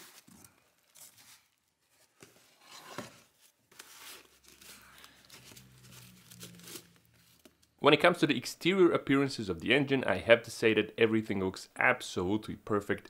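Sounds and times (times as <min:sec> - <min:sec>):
cardboard and foam rustling: 0:00.0 - 0:07.7
cardboard scrape: 0:01.0 - 0:07.5.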